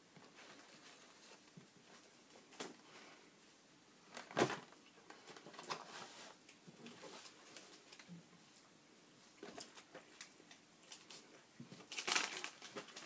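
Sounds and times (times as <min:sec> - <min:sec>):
food packaging crinkling: 0:09.5 - 0:13.0.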